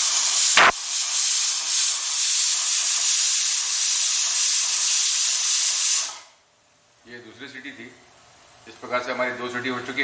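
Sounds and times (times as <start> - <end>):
pressure cooker steam hiss: 0.0 - 6.4.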